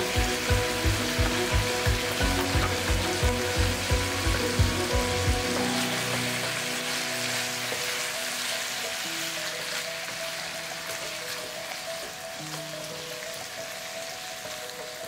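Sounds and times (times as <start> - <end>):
background music with low beat: 0.0 - 6.8
meat sizzling in a frying pan: 0.0 - 15.0.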